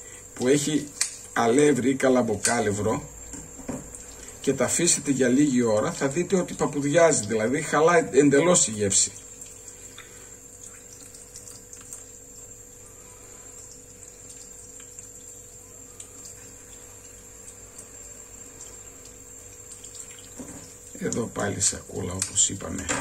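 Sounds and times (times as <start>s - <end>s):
steady hum: 0.0s - 23.0s
faint hiss: 12.1s - 23.0s.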